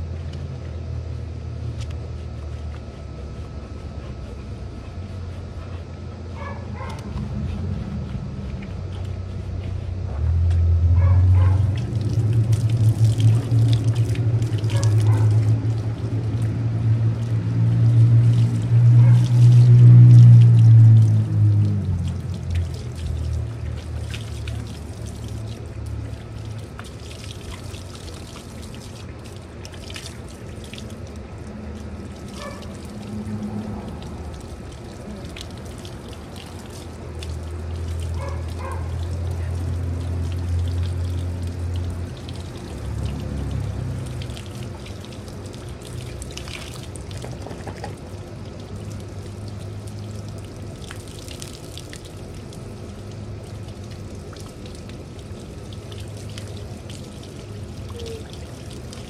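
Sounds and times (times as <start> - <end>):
low hum: 0.0 - 46.9
water running from a hose: 6.4 - 59.0.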